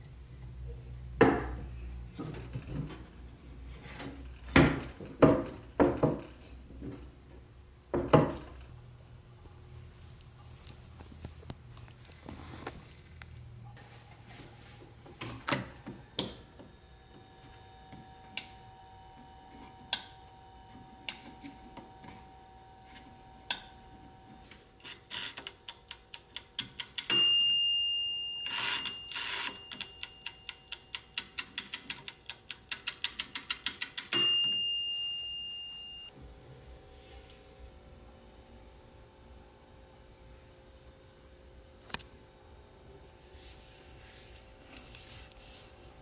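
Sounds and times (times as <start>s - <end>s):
timer bell dinging: 26.8s - 31.7s, 33.9s - 36.2s
timer dial ratchet ticking: 28.8s - 34.2s.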